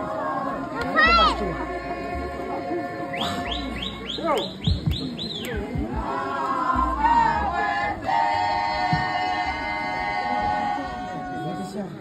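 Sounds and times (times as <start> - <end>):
voices chanting held notes: 0.0 - 12.0
people talking: 0.8 - 7.8
high whistled calls: 3.1 - 5.6.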